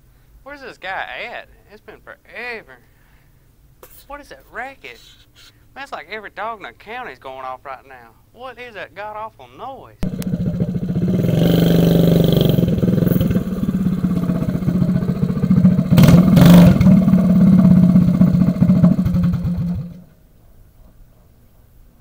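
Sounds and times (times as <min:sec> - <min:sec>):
small engine running rough: 0:10.0 - 0:20.0.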